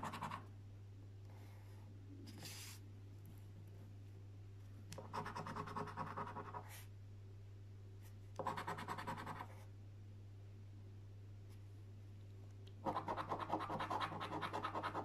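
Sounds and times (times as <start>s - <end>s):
coin scratching a scratchcard: 12.8s - 15.0s.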